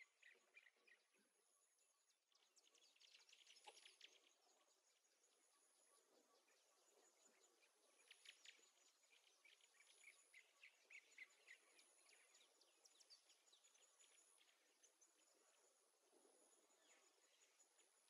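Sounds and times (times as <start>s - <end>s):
birdsong chirps: 0.0s - 18.0s.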